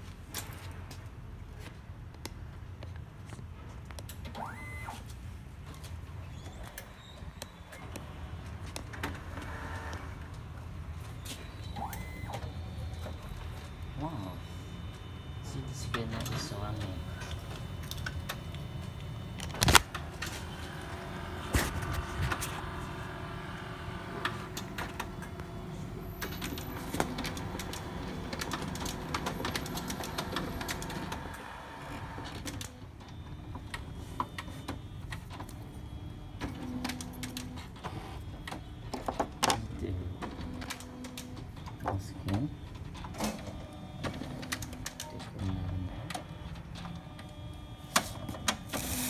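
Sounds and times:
printer motor whine with clicks: 4.0s - 5.1s, 6.4s - 49.0s
printer click: 26.2s - 31.4s.

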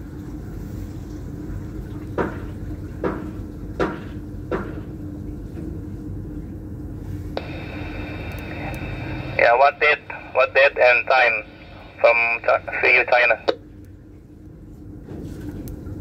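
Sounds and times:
low hum: 0.2s - 15.0s
sharp knocks: 2.2s - 4.9s.

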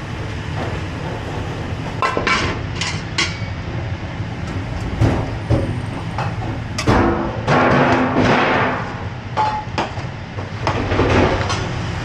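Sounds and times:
kitchen low rumble: 0.0s - 12.0s
pans and utensils clattering: 2.0s - 3.5s.

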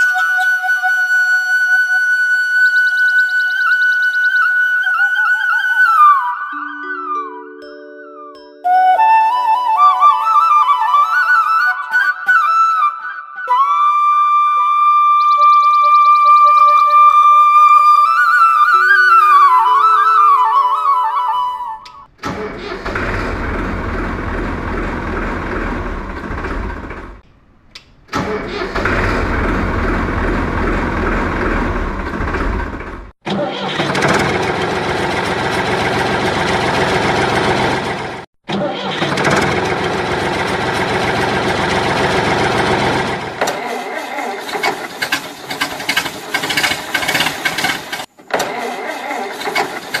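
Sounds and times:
flute-like music jingle: 0.0s - 22.1s
tractor engine running: 22.1s - 38.3s, 38.9s - 50.0s.

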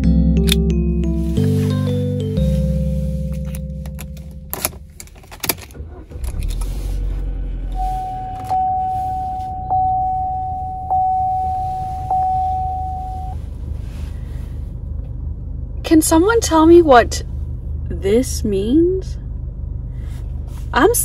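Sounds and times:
dashboard warning chime: 0.0s - 5.5s, 7.6s - 13.5s
car engine starting and idling: 0.0s - 21.0s
key jangling in ignition: 3.3s - 6.7s.

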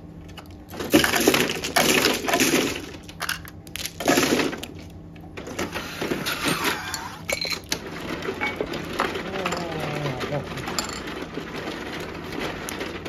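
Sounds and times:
mahjong tiles clattering: 7.3s - 12.6s.

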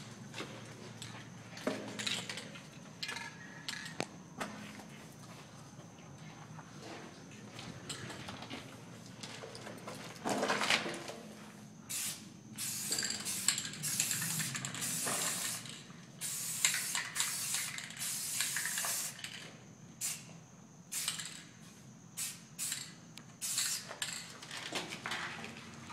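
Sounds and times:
spray-paint can hissing: 11.9s - 19.4s, 20.0s - 20.3s, 20.9s - 21.4s, 22.2s - 24.2s.

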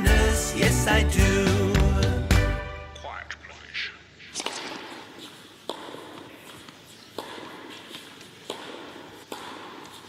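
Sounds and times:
sharp knocks: 8.5s - 10.0s.

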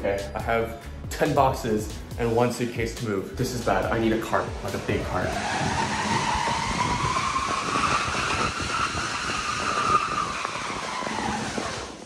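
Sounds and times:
plastic boxes scraping with squeal: 5.0s - 12.0s.

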